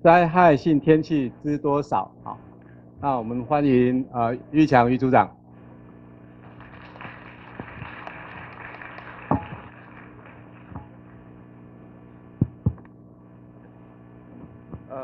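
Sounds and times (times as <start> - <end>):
electrical mains hum: 0.0 - 15.0
thumps on microphone: 9.3 - 9.7, 12.4 - 12.9, 14.3 - 15.0.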